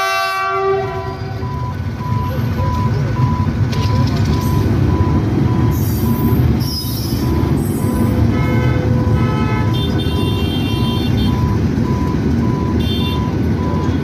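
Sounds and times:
diesel locomotive rumbling: 0:00.0 - 0:14.0.

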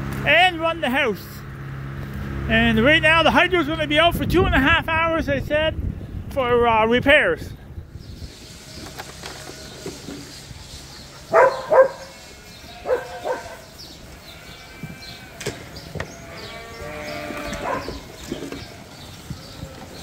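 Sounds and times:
lambs bleating: 0:11.7 - 0:19.9.

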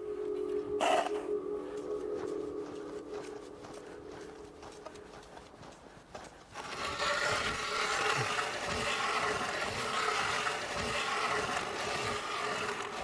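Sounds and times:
ice auger grinding into ice: 0:06.5 - 0:13.0.

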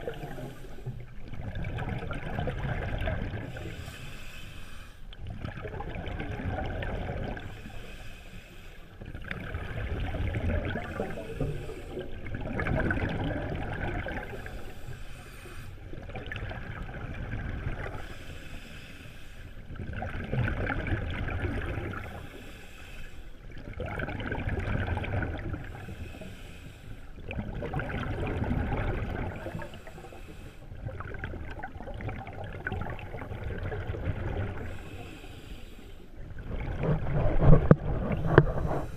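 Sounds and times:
regulator inhale hiss: 0:00.0 - 0:01.0, 0:03.5 - 0:05.1, 0:07.4 - 0:09.0, 0:10.8 - 0:12.2, 0:14.3 - 0:15.8, 0:18.0 - 0:19.6, 0:22.0 - 0:23.4, 0:25.6 - 0:27.2, 0:29.5 - 0:30.8, 0:34.7 - 0:36.2
exhaled bubbles rumbling: 0:00.0 - 0:04.0, 0:05.1 - 0:07.7, 0:09.0 - 0:15.0, 0:15.8 - 0:18.2, 0:19.6 - 0:22.4, 0:23.4 - 0:26.1, 0:27.1 - 0:35.3, 0:36.0 - 0:38.9.

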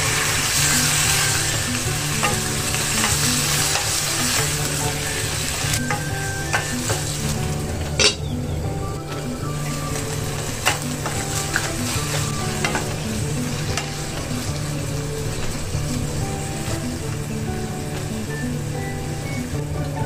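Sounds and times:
spatula knocking pan: 0:00.0 - 0:08.4, 0:10.3 - 0:14.8
meat sizzling in oil: 0:00.0 - 0:20.0
glass lid clattering: 0:08.0 - 0:08.3.

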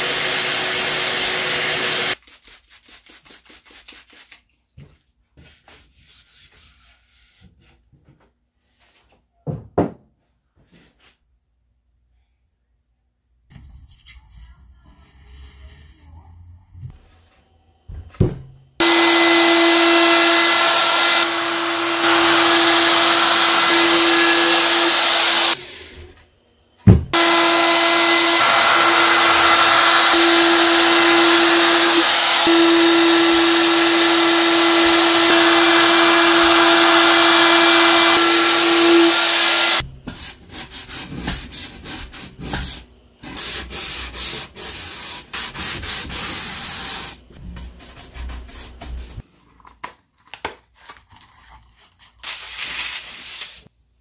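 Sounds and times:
router high whine: 0:00.0 - 0:02.2, 0:18.8 - 0:26.1, 0:27.2 - 0:39.8.

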